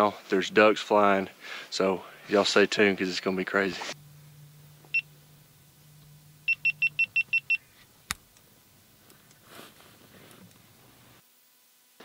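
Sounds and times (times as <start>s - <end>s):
faint low hum: 0.0s - 12.0s
high electronic beeps: 6.5s - 7.6s.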